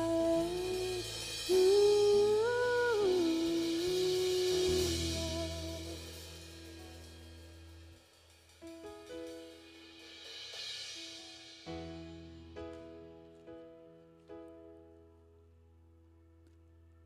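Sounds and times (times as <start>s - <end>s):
worship band music: 0.0s - 12.9s.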